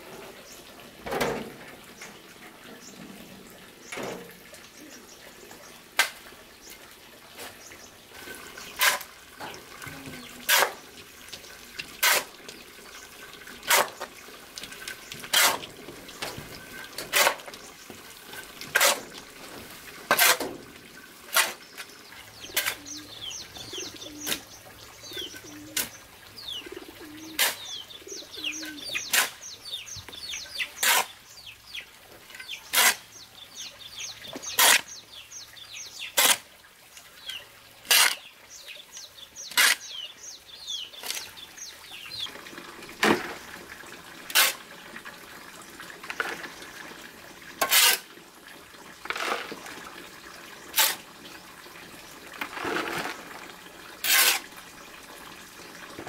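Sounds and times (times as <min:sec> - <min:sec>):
small birds chirping: 0:07.4 - 0:14.2, 0:21.5 - 0:42.4
shovel scraping on concrete: 0:08.2 - 0:09.1, 0:10.0 - 0:10.8, 0:12.0 - 0:12.3, 0:13.6 - 0:14.1, 0:14.8 - 0:15.7, 0:17.0 - 0:17.5, 0:18.4 - 0:19.1, 0:20.1 - 0:20.6, 0:21.3 - 0:21.8, 0:22.5 - 0:23.0, 0:27.4 - 0:27.7, 0:29.0 - 0:29.5, 0:30.8 - 0:31.2, 0:32.7 - 0:33.1, 0:34.4 - 0:35.0, 0:36.1 - 0:36.5, 0:37.9 - 0:38.3, 0:39.5 - 0:40.0, 0:41.0 - 0:41.3, 0:44.3 - 0:44.7, 0:47.6 - 0:48.1, 0:49.1 - 0:49.6, 0:50.7 - 0:51.1, 0:52.4 - 0:53.4, 0:54.0 - 0:54.5.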